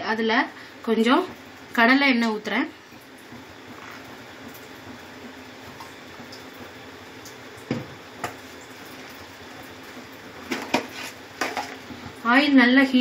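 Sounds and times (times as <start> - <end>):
low kitchen background hiss: 0.0 - 13.0.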